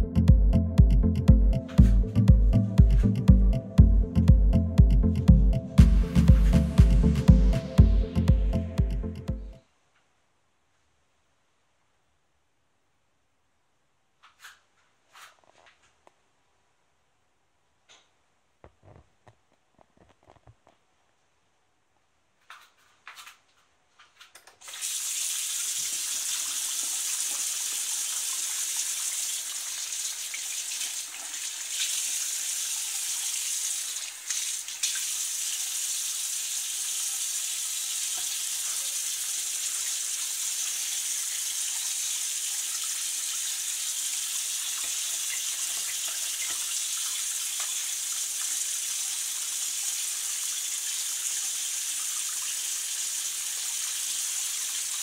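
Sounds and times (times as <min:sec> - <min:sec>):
tap water running into basin: 0:24.6 - 0:55.0.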